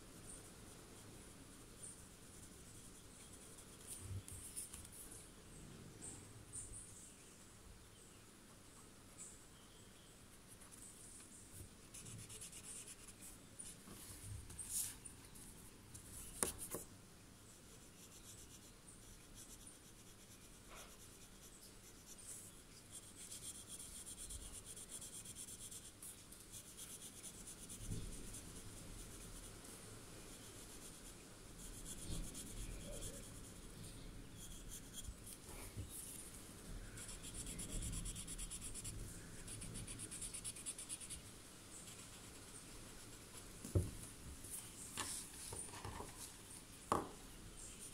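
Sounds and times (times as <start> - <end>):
pencil scratching on paper: 11.8 - 13.2, 17.7 - 29.4, 30.4 - 36.2, 37.0 - 41.2.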